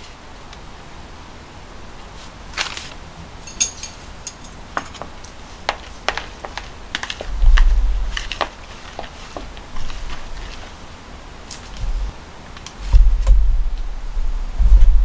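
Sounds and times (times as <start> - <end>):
low thump and rumble: 12.9 - 15.0.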